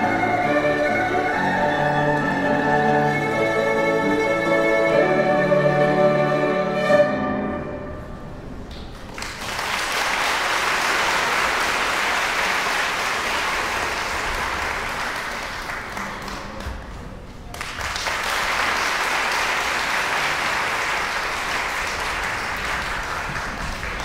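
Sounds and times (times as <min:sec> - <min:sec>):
audience applause: 0:08.8 - 0:24.0.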